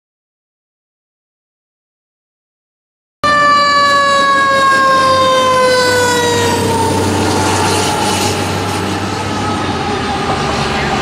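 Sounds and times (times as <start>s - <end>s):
fire engine rumble: 3.2s - 11.0s
fire engine siren: 3.2s - 11.0s.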